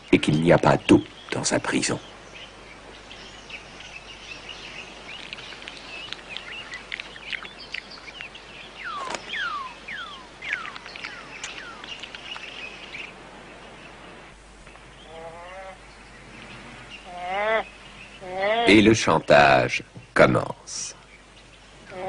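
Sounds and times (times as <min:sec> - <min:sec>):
birds chirping: 0:00.0 - 0:22.0
downward-sliding whistled bird calls: 0:03.2 - 0:13.2.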